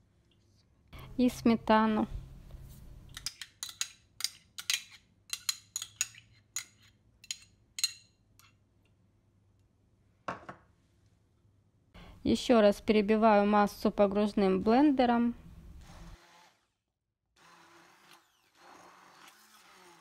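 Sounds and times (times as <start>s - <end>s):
metal spoon clinking on ceramic dish: 3.2s - 8.6s.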